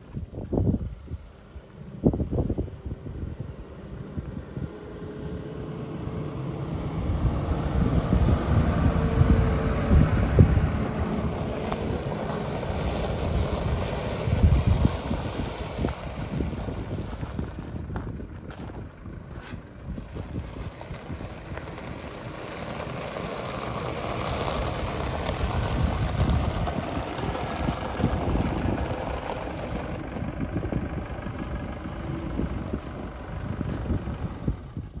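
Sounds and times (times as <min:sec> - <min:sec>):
pickup engine idling: 0:08.6 - 0:35.0.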